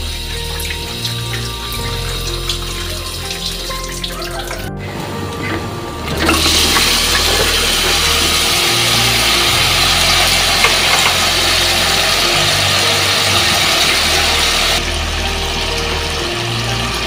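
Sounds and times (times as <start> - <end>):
background music: 0.0 - 17.0
tap water running: 0.0 - 17.0
loud steady cooking hiss: 6.3 - 17.0.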